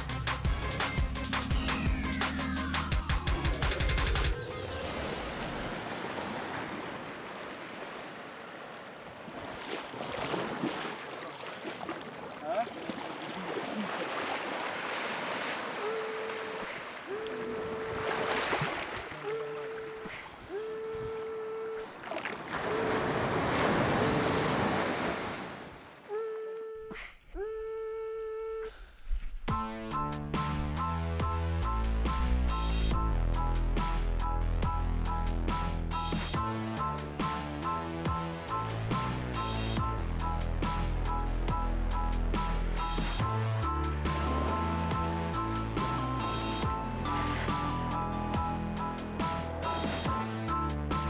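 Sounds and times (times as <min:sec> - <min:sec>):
surf washing over shore: 0:04.3 - 0:19.7, 0:22.3 - 0:26.0
surf washing on rocky shore: 0:22.4 - 0:25.9.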